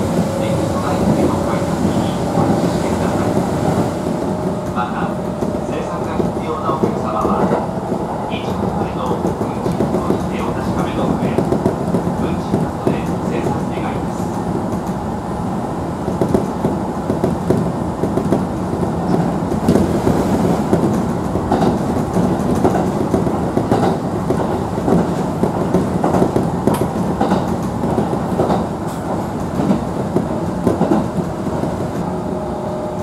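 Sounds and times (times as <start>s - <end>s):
train wheels rumbling on rails: 0.0s - 33.0s
clacks over rail joints: 20.7s - 32.0s.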